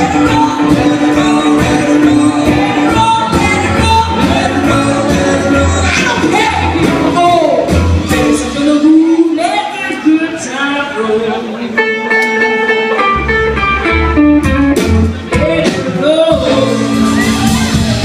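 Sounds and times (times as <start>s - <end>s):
double bass: 0.0s - 9.0s
woman singing: 0.0s - 11.3s, 15.3s - 17.9s
electric guitar: 0.0s - 18.0s
steady drumbeat: 14.1s - 18.0s.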